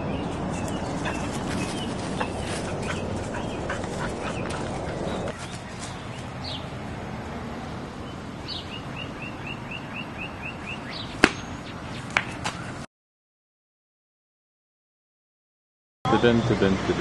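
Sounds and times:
bird chirping: 0:00.0 - 0:06.8, 0:07.6 - 0:12.8.

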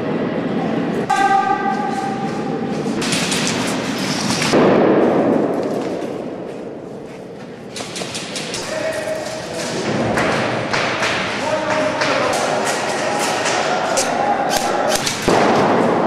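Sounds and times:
echoing din of indoor game: 0:00.0 - 0:16.0
brief held tone: 0:01.1 - 0:02.4.

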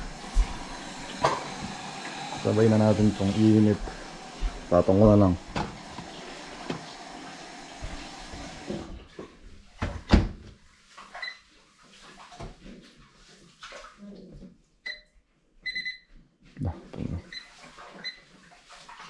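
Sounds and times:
microwave keypad beeping: 0:15.7 - 0:16.1.

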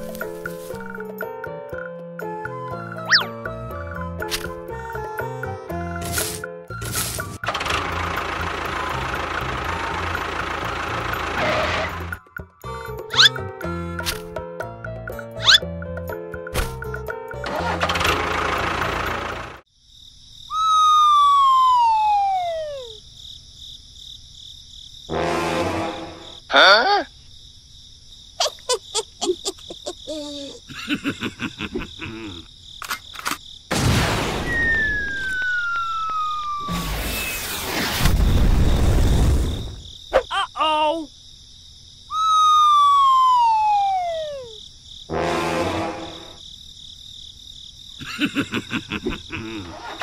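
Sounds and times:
short bouncing chirps: 0:03.1 - 0:03.3
whistle-like tone gliding down: 0:20.5 - 0:22.9, 0:34.4 - 0:37.7, 0:42.1 - 0:44.5
burst of noise: 0:33.7 - 0:39.8.

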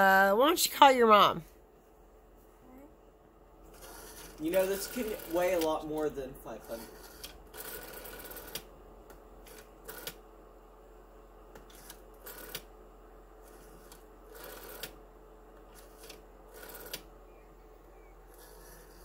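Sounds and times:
rotary telephone dial clicking: 0:09.5 - 0:10.2, 0:11.6 - 0:12.7, 0:13.8 - 0:15.0, 0:15.8 - 0:17.0.

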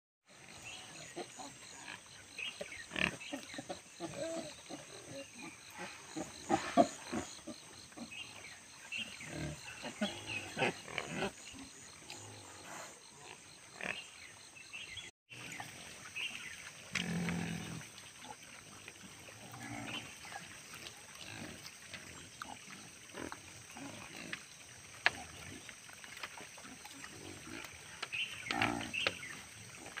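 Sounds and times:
wild boars grunting: 0:00.5 - 0:14.2.

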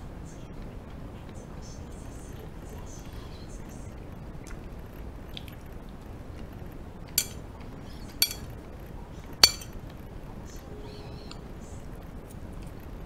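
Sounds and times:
metal spoon clinking on ceramic plate: 0:07.2 - 0:07.4, 0:08.1 - 0:08.4, 0:09.4 - 0:09.7.

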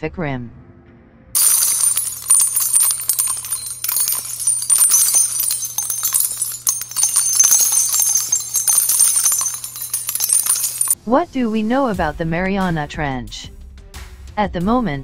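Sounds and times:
jingling bell-like clicks: 0:01.4 - 0:11.0.

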